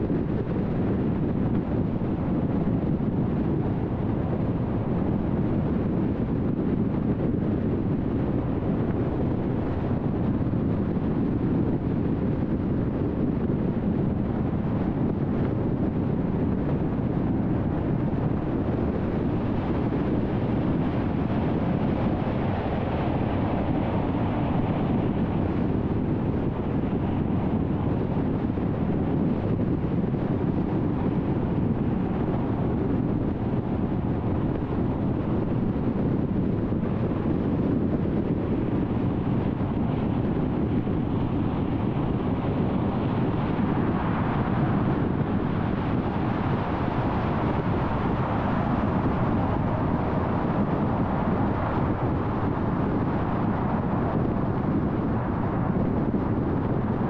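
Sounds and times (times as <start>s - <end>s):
car road and wind noise: 0.0s - 57.0s.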